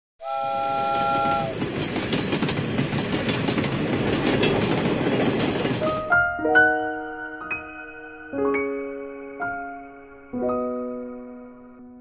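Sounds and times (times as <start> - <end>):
steam locomotive whistle: 0.2 - 1.6
train rumbling: 0.2 - 6.4
wheels clicking on rails: 0.6 - 6.2.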